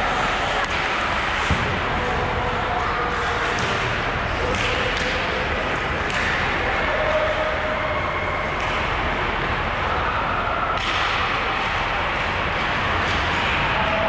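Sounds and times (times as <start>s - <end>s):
arena noise: 0.0s - 14.0s.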